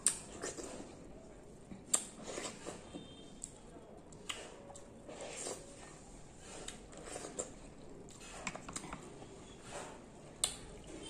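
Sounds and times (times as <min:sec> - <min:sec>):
wet chewing and mouth smacks: 0:00.0 - 0:00.9, 0:01.6 - 0:02.8.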